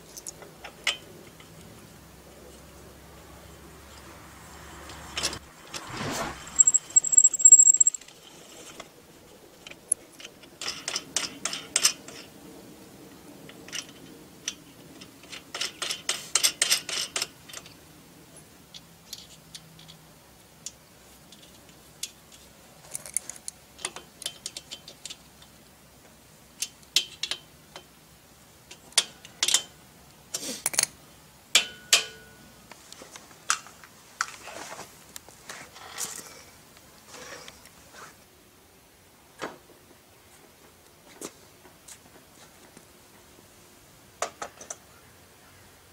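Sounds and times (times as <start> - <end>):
steel parts clinking and rattling: 5.2 - 8.1
high squeak: 5.8 - 8.0.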